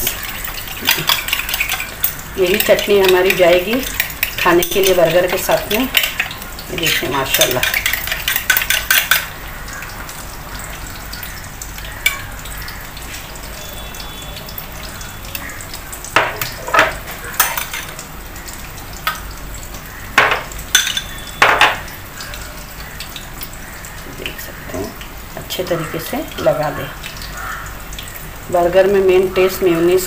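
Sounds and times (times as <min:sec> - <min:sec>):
spoon clinking glass bowl: 0:00.0 - 0:09.3, 0:16.2 - 0:17.9, 0:20.2 - 0:21.8
patties sizzling in oil: 0:00.0 - 0:30.0.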